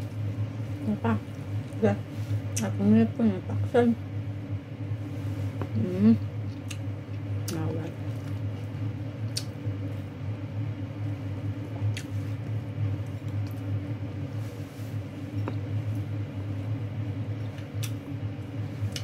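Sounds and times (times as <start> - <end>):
steady low hum: 0.0 - 19.0
food squishing and chewing: 1.2 - 2.6, 6.4 - 10.1, 11.0 - 14.0, 17.2 - 19.0.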